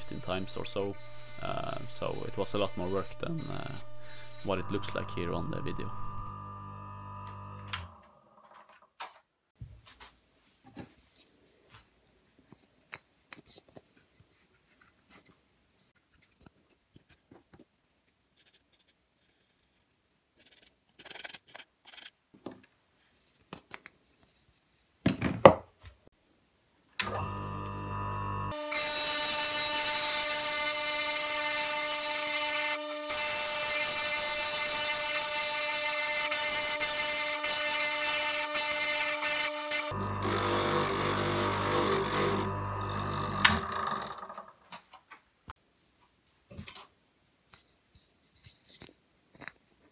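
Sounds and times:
sanding drum motor whine: 0.0 - 8.0, 27.1 - 43.8.

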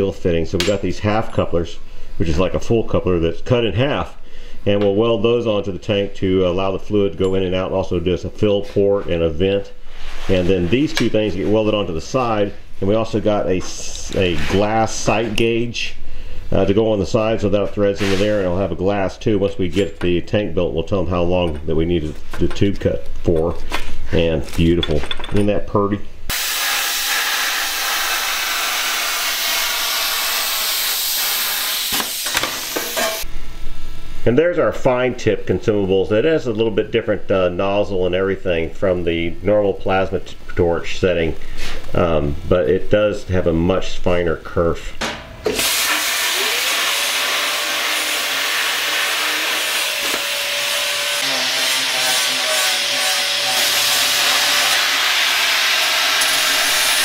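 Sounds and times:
plasma cutter hissing: 26.3 - 33.2, 45.4 - 57.0.

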